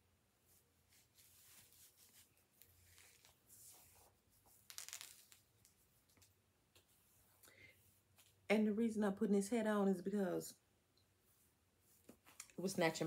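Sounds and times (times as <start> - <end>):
wig cap rustling: 0.4 - 7.4.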